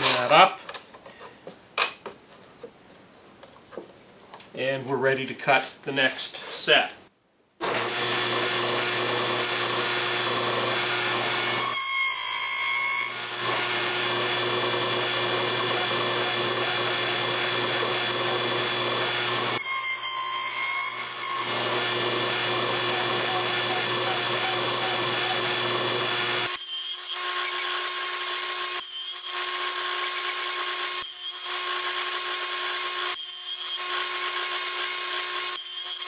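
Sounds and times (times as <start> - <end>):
saw blade cutting wood: 7.6 - 36.0
table saw running: 7.6 - 36.0.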